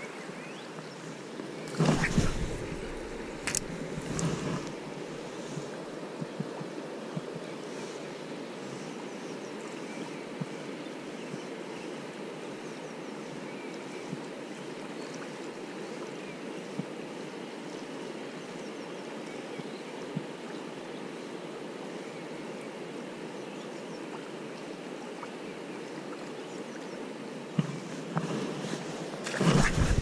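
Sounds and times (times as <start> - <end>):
river water rushing: 1.1 - 6.1, 28.8 - 30.0.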